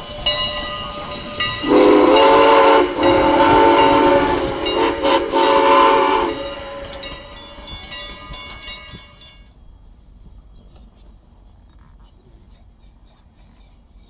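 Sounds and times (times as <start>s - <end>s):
steam locomotive whistle: 0.0s - 9.2s
crossing bell ringing: 0.0s - 9.6s.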